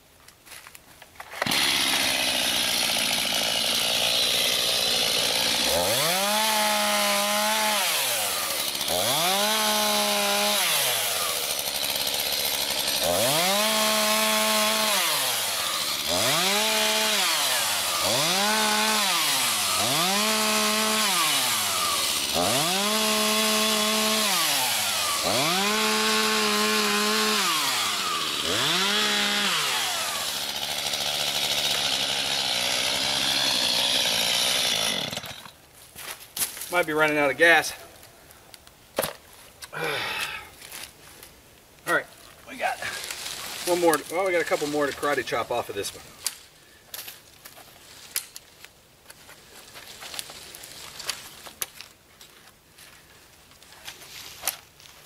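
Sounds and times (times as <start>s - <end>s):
chainsaw idling and revving: 1.4s - 35.6s, 41.9s - 46.0s.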